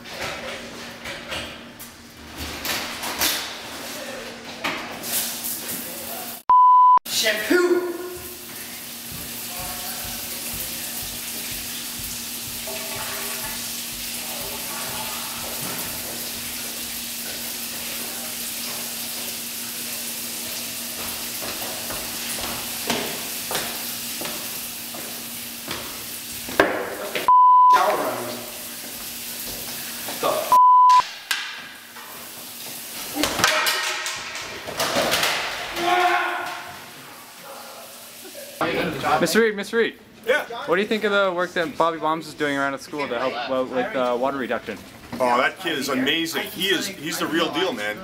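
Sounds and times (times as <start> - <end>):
shower water running: 0.2 - 6.4, 7.1 - 30.5, 31.1 - 39.5
high bleep tones: 6.5 - 7.0, 27.3 - 27.8, 30.5 - 31.0
person speaking: 7.1 - 8.4.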